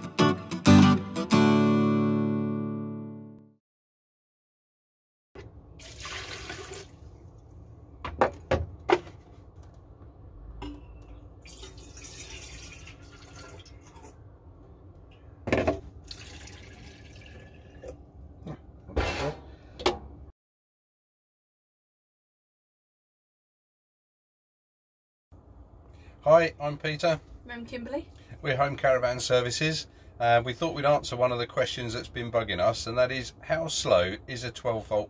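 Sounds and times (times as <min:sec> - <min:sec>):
water pouring into kettle: 0:05.8 - 0:07.1, 0:11.4 - 0:14.2, 0:16.0 - 0:18.0.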